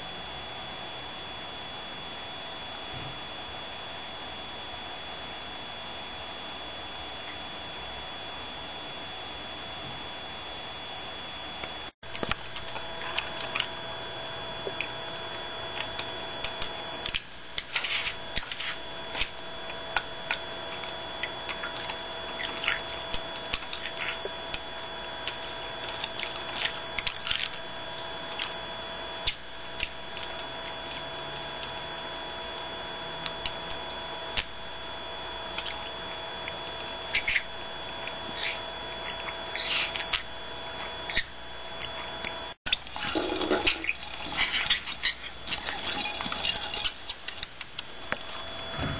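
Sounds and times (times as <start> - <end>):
steady whining hum: 0.0 - 48.9
budgerigar chirping: 38.4 - 40.2.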